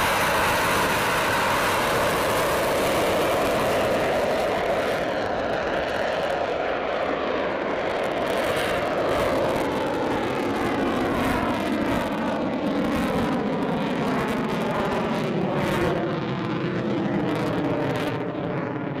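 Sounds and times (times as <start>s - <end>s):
jet roar in afterburner: 0.0s - 19.0s.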